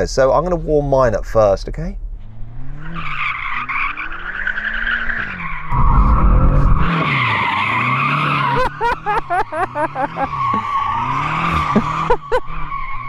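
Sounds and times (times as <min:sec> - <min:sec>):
heavy low rumble: 0:00.0 - 0:02.8, 0:05.7 - 0:06.9
car engine revving: 0:01.9 - 0:13.0
tyres squealing: 0:09.9 - 0:13.0.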